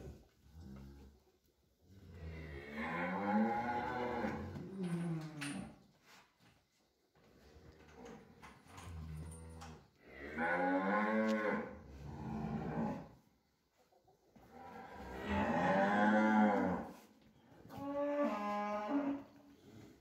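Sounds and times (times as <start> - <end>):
cattle mooing: 2.3 - 4.5, 10.2 - 13.1, 15.0 - 16.9, 17.8 - 19.3.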